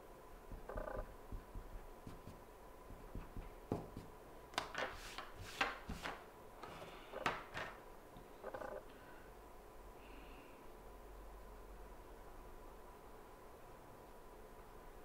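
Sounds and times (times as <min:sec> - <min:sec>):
pencils clicking and knocking: 0:03.1 - 0:07.8.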